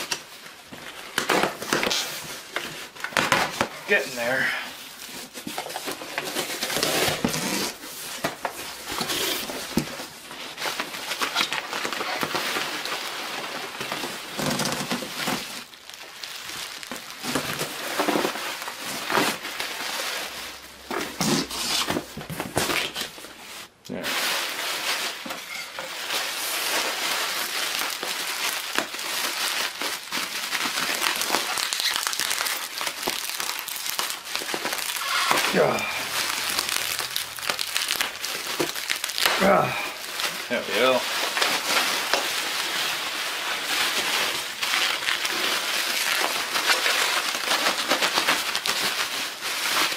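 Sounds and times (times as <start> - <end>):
bubble wrap crinkling: 0.0 - 49.9
cardboard box scraping: 5.3 - 8.0, 21.0 - 23.0.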